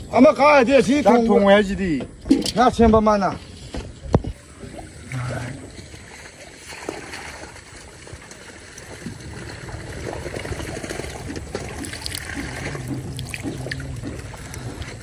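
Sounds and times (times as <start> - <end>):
pond water trickling and lapping: 0.0 - 15.0
small water splashes: 4.2 - 15.0.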